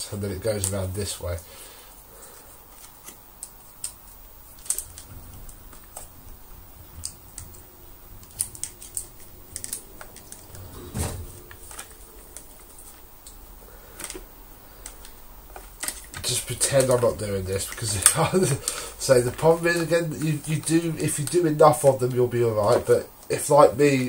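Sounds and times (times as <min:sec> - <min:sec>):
plastic parts clicking and tapping: 0:02.7 - 0:13.4, 0:14.0 - 0:21.5.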